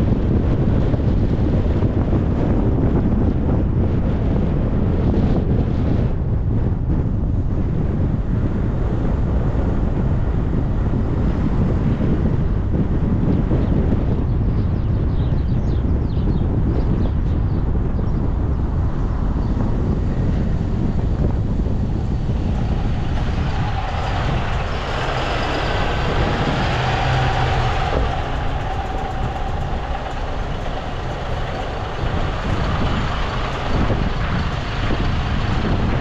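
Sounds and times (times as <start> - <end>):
bus driving: 0.0 - 36.0
wind rumble on microphone: 0.0 - 36.0
steady tone: 20.5 - 36.0.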